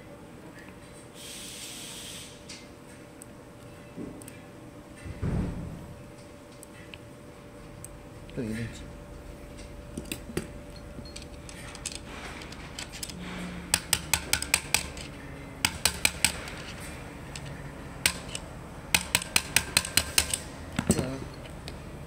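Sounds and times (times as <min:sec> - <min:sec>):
sharp metal clicks: 0:11.0 - 0:20.5.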